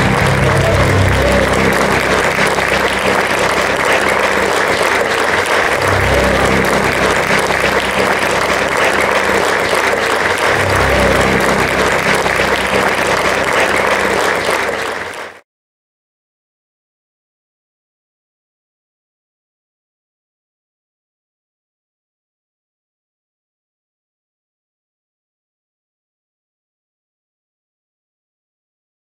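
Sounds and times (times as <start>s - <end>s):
low instrument notes: 0.0s - 15.0s
audience applauding: 0.0s - 15.4s.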